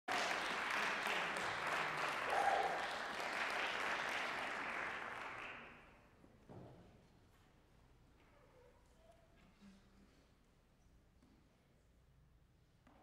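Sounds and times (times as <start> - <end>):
audience applauding: 0.1 - 5.8.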